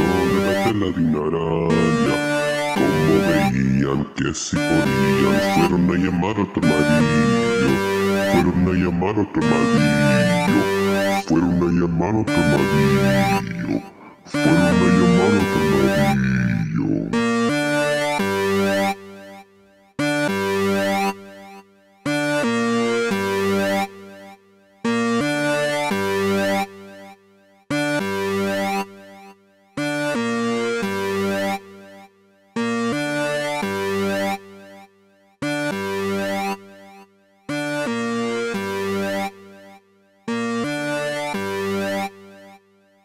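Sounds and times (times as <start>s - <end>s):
synthesizer chords: 0.0s - 3.7s, 4.5s - 19.0s, 40.3s - 42.1s.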